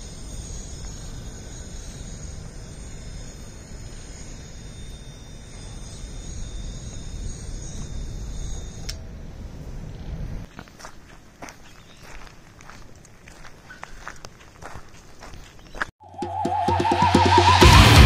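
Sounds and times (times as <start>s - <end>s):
high-pitched whine: 0.0s - 10.0s, 16.0s - 18.0s.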